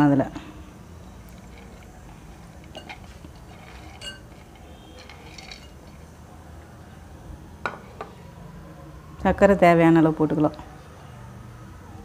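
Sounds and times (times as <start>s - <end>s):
clinks against glass bowl: 2.7s - 4.4s, 5.0s - 6.0s.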